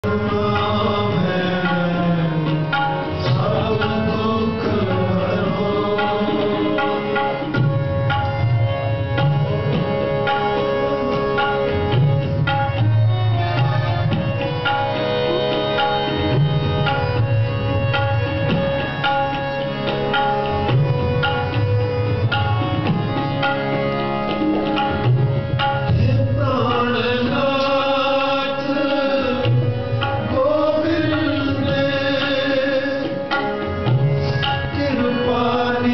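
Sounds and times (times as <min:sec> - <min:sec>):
man singing: 0:00.0 - 0:07.5, 0:25.9 - 0:35.9
harmonium chords: 0:00.0 - 0:35.9
tabla: 0:00.0 - 0:35.9.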